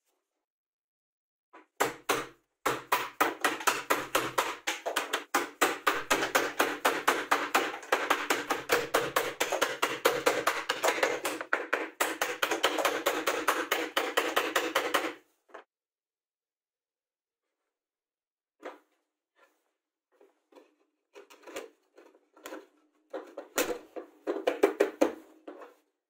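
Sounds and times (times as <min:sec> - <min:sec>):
hammer tapping wood chisel: 0:01.8 - 0:15.2.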